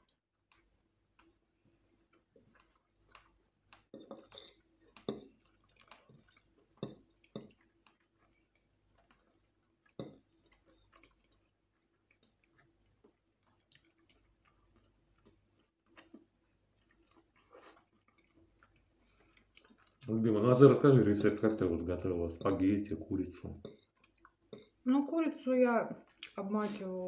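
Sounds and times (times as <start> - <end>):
faint chewing: 0.0 - 27.0.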